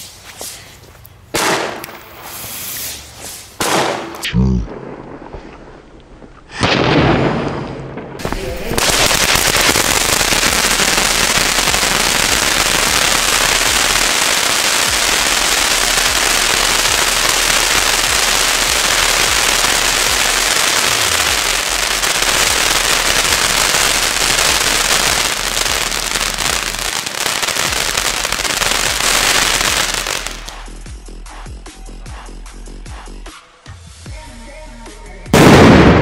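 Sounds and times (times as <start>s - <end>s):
firework fountains hissing and crackling: 1.6s - 3.8s, 8.2s - 30.6s.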